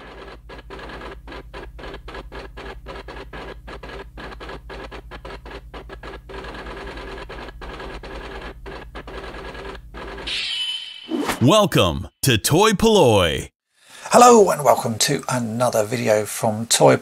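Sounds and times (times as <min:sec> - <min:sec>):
computer terminal typing clatter: 0:00.0 - 0:10.3.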